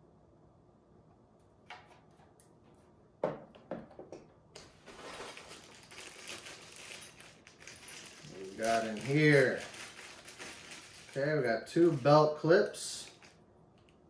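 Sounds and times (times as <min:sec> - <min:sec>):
packaging rustling: 0:04.7 - 0:13.4.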